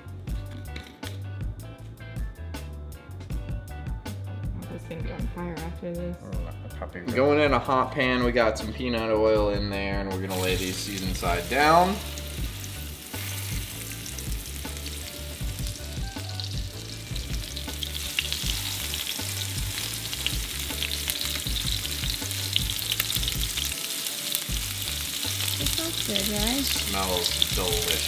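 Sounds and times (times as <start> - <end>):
fish sizzling in a frying pan: 10.3 - 28.0.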